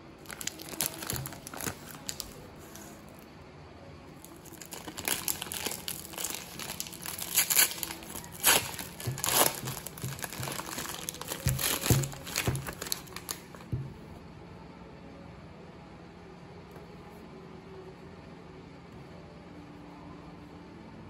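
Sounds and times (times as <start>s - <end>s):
plastic wrapper crinkling: 0.2s - 3.0s, 4.2s - 13.9s
plastic container knocks: 9.0s - 14.1s.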